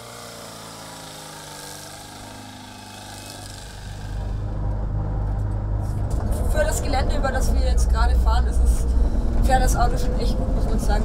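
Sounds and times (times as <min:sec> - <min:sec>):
vehicle engine running: 0:01.4 - 0:11.0
low rumble over rough ground: 0:03.8 - 0:11.0.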